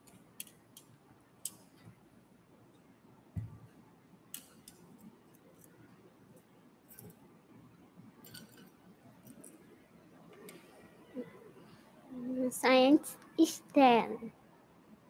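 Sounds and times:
low thump: 3.4 - 3.6.

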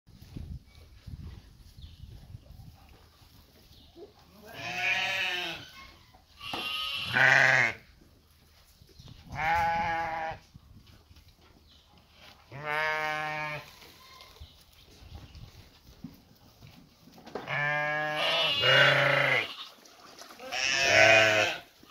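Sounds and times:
sheep bleating: 4.4 - 5.7, 6.4 - 7.8, 12.5 - 13.6, 17.5 - 19.8, 20.4 - 21.7.

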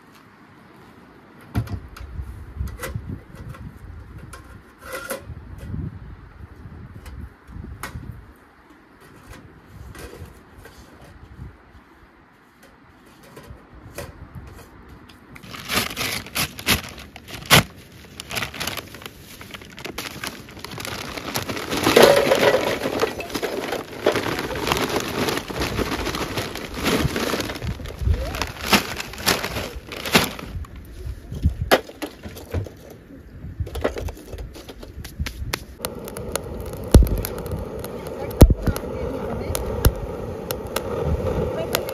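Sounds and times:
charcoal clattering into metal grill: 21.8 - 24.5.

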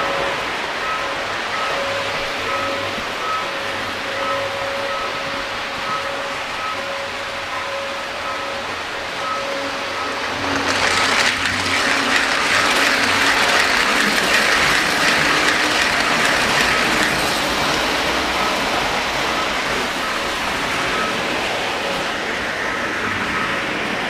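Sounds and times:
running noise of model trains: 0.0 - 24.0
model train wheels clattering: 9.2 - 22.2.

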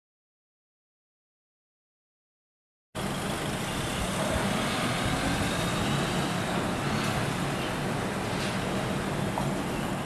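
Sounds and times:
tow truck engine running: 3.0 - 10.0.

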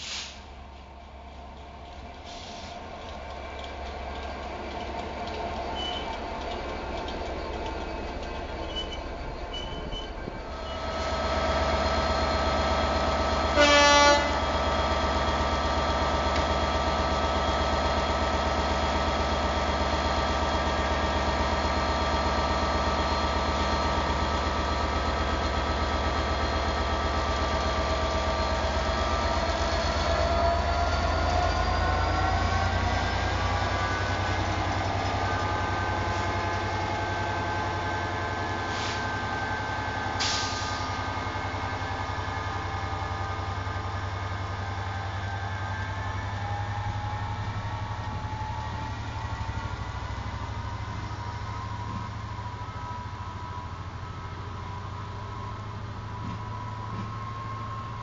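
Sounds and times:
diesel locomotive engine running: 0.0 - 58.0
locomotive horn blast: 13.5 - 14.5.

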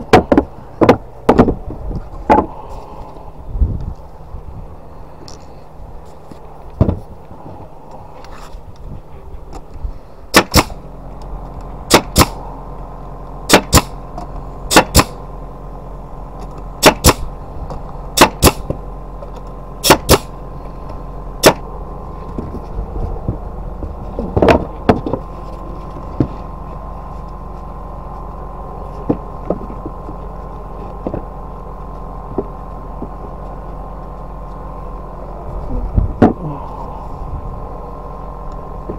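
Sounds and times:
air compressor motor hum: 0.0 - 38.9
nail gun firing into wood: 10.3 - 10.8, 11.9 - 12.4, 13.5 - 14.0, 14.7 - 15.2, 16.8 - 17.3, 18.2 - 18.7, 19.8 - 20.3, 21.4 - 21.6.

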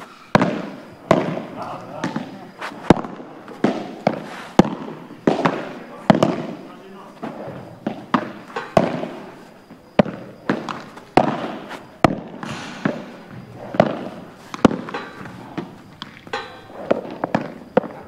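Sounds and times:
balls hit with rackets: 0.0 - 18.0
balls bouncing on court: 0.3 - 18.0.

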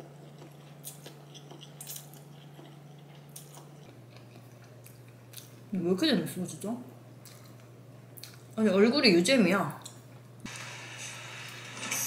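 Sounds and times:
chewing spaghetti: 0.0 - 5.6
steady low hum: 0.0 - 12.0.

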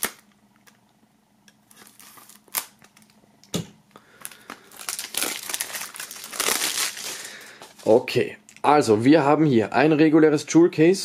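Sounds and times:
plastic film crinkling: 0.0 - 0.2, 1.6 - 3.2, 4.2 - 8.0.

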